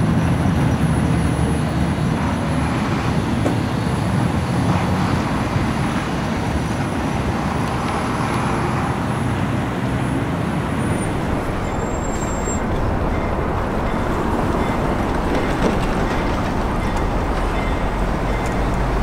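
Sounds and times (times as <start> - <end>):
street traffic rumble: 0.0 - 19.0.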